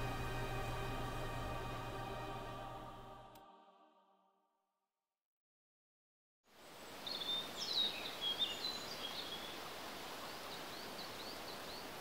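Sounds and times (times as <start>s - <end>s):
outdoor ambience hiss: 0.0s - 3.6s, 6.5s - 12.0s
songbirds chirping: 6.7s - 12.0s.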